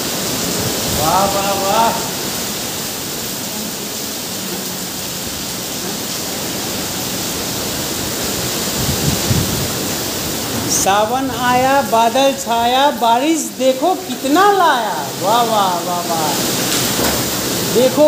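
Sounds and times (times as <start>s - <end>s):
strong wind: 0.0s - 12.9s
heavy rain pouring: 0.0s - 18.0s.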